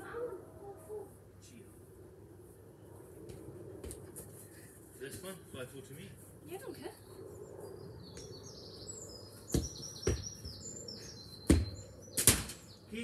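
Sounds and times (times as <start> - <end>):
birds chirping: 6.5 - 13.0
football kicked and bouncing: 9.5 - 10.6, 11.5 - 11.8.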